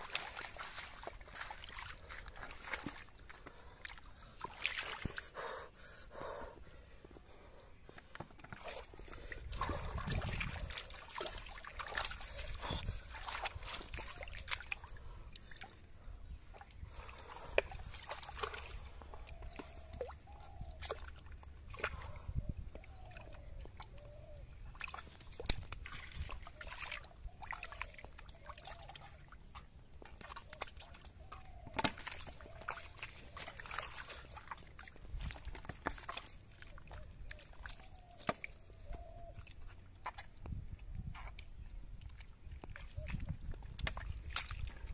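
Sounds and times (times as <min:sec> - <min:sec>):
water splashes: 0:00.0 - 0:05.4, 0:08.4 - 0:40.5, 0:41.9 - 0:44.9
hands sloshing in muddy water: 0:00.0 - 0:05.6, 0:07.7 - 0:44.9
wet squelches: 0:00.0 - 0:44.9
blade scraping wet mud: 0:29.1 - 0:40.4.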